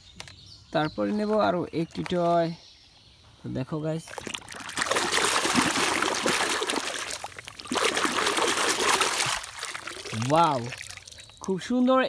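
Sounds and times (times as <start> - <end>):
water splashing and sloshing: 4.0 - 11.8.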